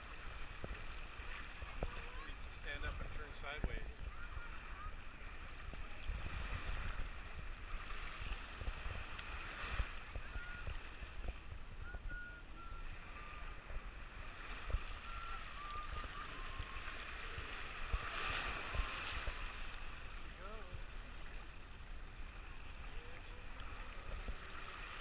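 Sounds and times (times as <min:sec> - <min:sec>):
water lapping and sloshing: 0:00.0 - 0:25.0
wind buffeting microphone: 0:01.6 - 0:20.9.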